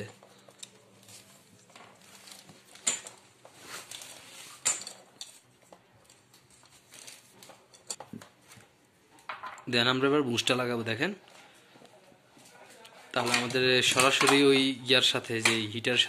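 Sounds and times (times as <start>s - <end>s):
tape rustling: 0.1s - 8.8s.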